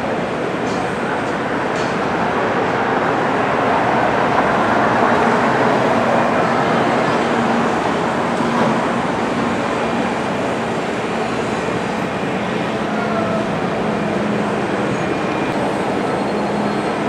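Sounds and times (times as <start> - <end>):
train running: 0.0 - 17.0.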